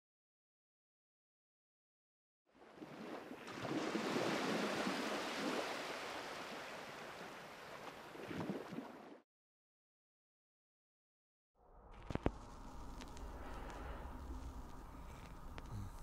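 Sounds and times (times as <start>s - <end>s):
ocean surf washing: 2.8s - 8.2s.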